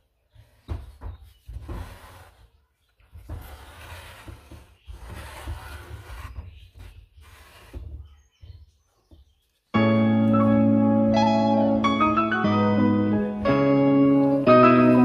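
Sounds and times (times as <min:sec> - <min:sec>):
shelf scraping on wooden table: 0:00.4 - 0:08.1.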